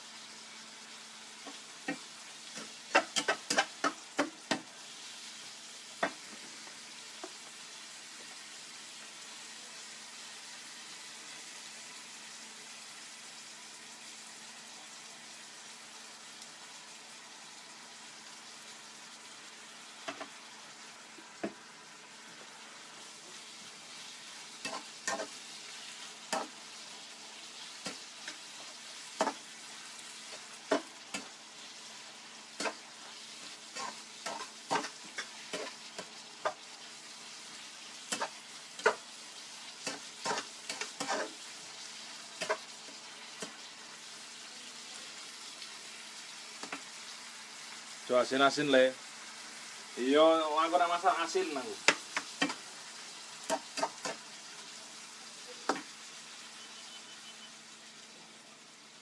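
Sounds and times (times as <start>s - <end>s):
food sizzling in a frying pan: 0.0s - 59.0s
metal spatula scraping pan: 24.6s - 25.4s, 39.8s - 41.5s.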